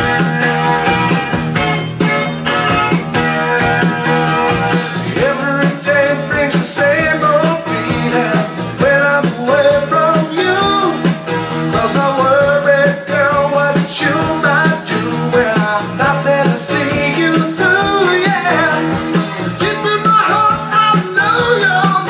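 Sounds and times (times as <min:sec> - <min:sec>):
rock song from vinyl record: 0:00.0 - 0:22.0
person singing: 0:04.9 - 0:22.0.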